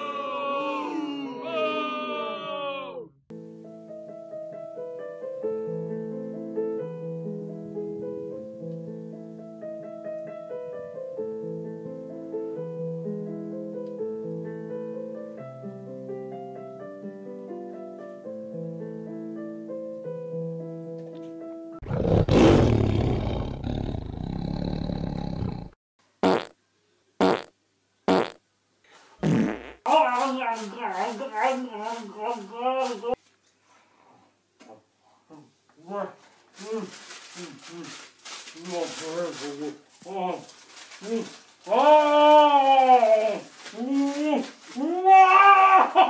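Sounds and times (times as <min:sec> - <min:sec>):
piano piece: 0:03.3 - 0:21.8
harsh rasping noise: 0:21.8 - 0:25.8.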